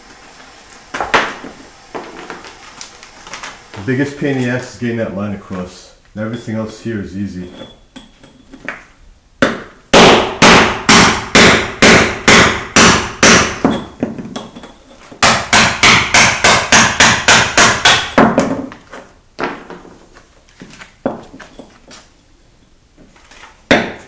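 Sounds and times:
hammer striking steel chisel: 9.4s - 18.4s.

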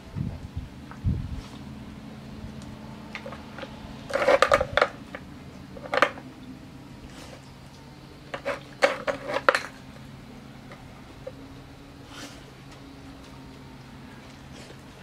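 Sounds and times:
plastic bowls clattering on paving: 3.1s - 6.5s, 8.2s - 11.5s.

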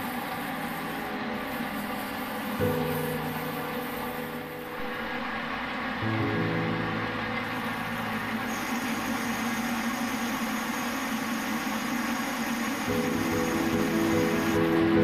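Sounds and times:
metal lathe running: 0.0s - 15.0s.

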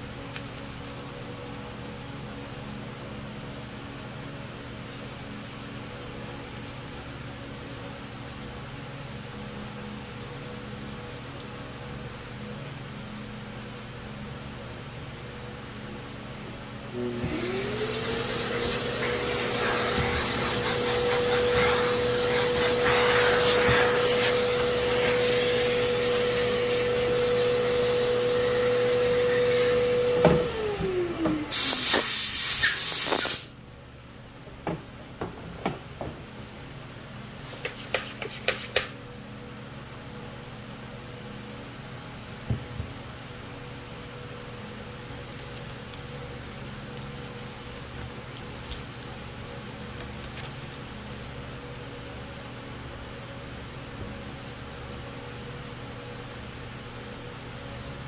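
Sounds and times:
aerosol can spraying: 18.3s - 25.1s, 31.5s - 33.5s.

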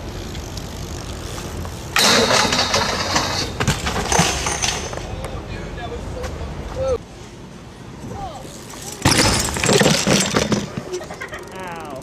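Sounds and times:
bike and rider hitting concrete: 0.0s - 5.4s, 8.1s - 11.8s.

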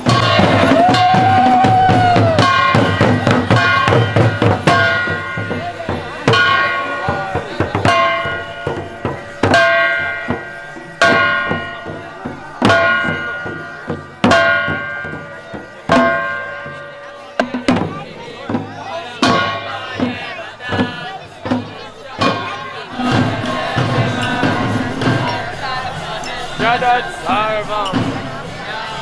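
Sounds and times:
drums beating: 0.0s - 29.0s.

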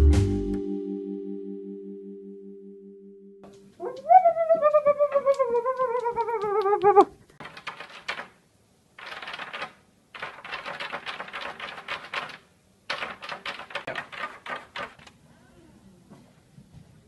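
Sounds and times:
plastic claws scratching a door: 7.4s - 8.4s, 9.0s - 15.1s.

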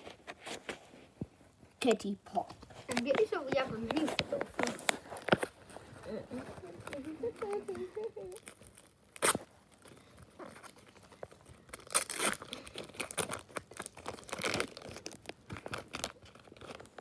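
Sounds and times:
wrapper tearing and crinkling: 3.9s - 17.0s.

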